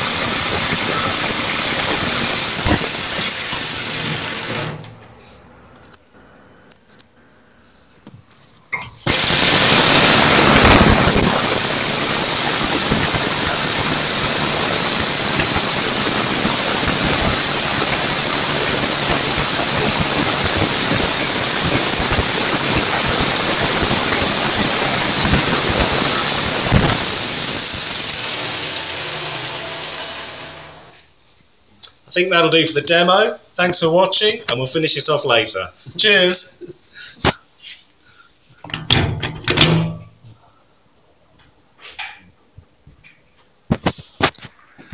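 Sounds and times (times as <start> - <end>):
jigsaw cutting steel plate: 0.0 - 4.9, 9.0 - 31.0.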